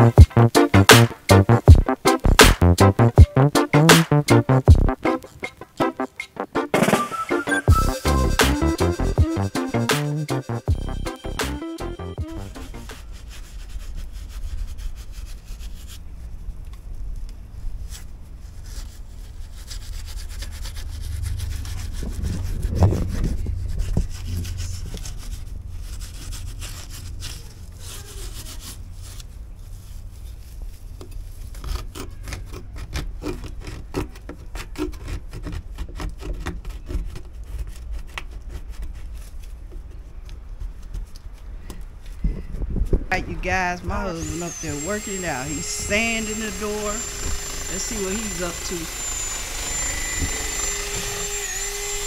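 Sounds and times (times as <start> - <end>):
hand scraper scraping paint: 7.8 - 10.7, 12.4 - 16.2, 17.8 - 41.2, 43.9 - 52.0.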